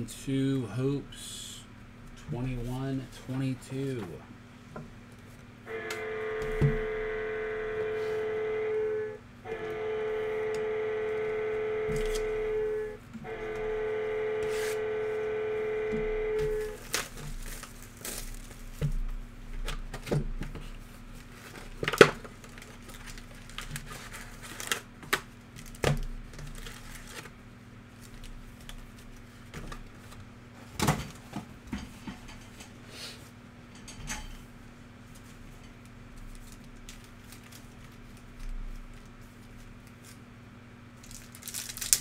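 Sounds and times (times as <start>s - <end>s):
buzzing tones: 5.7s - 16.9s
plastic wrap tearing: 16.7s - 18.8s, 21.5s - 27.3s, 41.0s - 42.0s.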